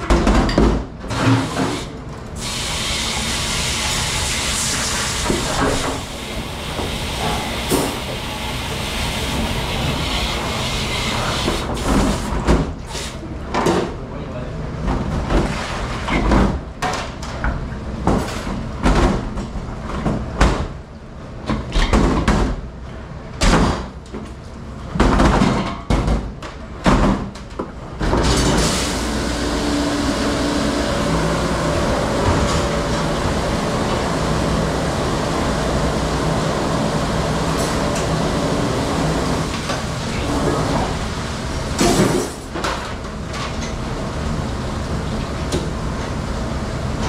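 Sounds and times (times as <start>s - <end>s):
spraying water rushing: 2.4s - 12.3s.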